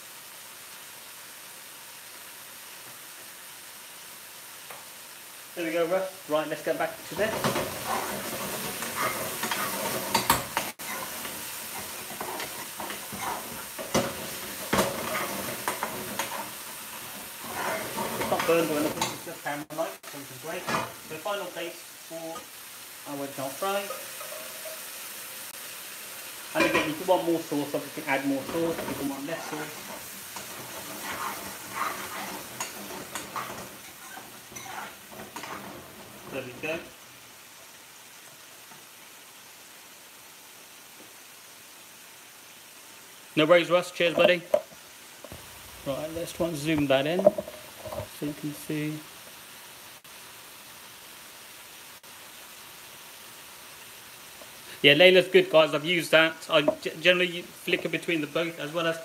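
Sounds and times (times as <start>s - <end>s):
sauce sizzling in a pan: 0.0s - 59.0s
metal spoon scraping a pan: 7.1s - 19.2s, 23.8s - 24.9s, 28.0s - 36.4s.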